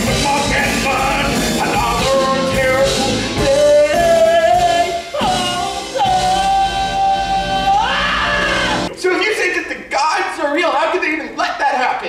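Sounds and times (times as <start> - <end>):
live rock band: 0.0 - 8.9.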